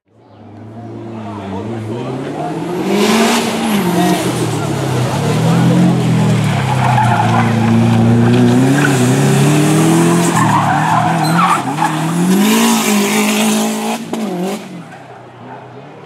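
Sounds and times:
car engine revving hard: 1.0s - 14.9s
tyres squealing: 3.6s - 13.9s.

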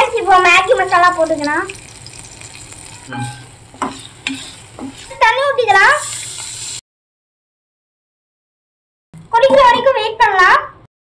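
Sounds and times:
water poured into hot pan: 0.0s - 5.2s, 5.8s - 6.8s
vegetables sizzling: 0.0s - 6.8s
wooden spatula scraping pan: 2.9s - 6.8s.

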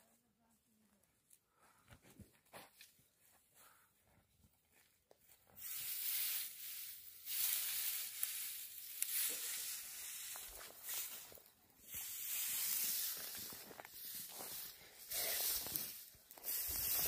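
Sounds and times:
hay scraping over stony ground: 5.6s - 17.0s.

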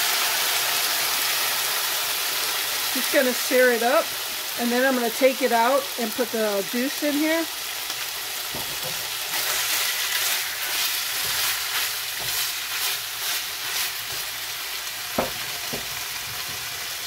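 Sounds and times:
meat sizzling in oil: 0.0s - 17.0s
spatula scraping skillet: 8.5s - 17.0s.

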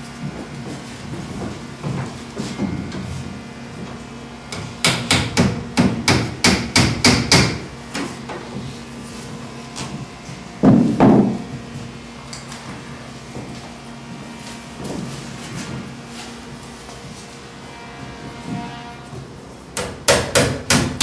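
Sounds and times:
hammer tapping wood: 19.8s - 21.0s.

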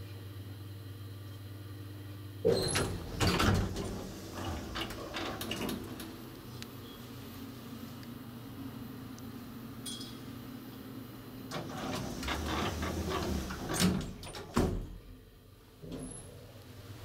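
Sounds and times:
steady low hum: 0.0s - 17.0s
elevator doors sliding closed: 2.4s - 6.4s, 11.5s - 15.0s
elevator doors shutting thump: 2.5s - 6.2s, 11.5s - 15.1s.

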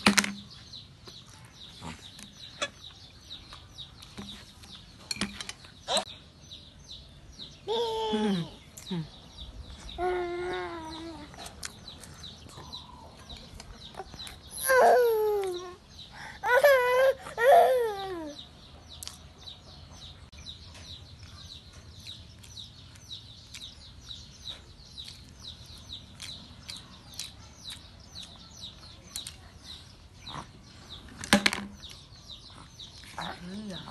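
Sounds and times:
small birds chirping: 0.0s - 33.9s
toddler wailing: 14.5s - 15.8s, 16.4s - 18.4s.

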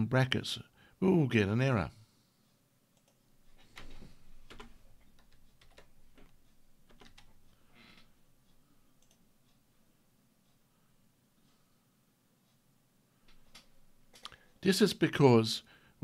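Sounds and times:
keyboard typing: 3.0s - 7.4s.

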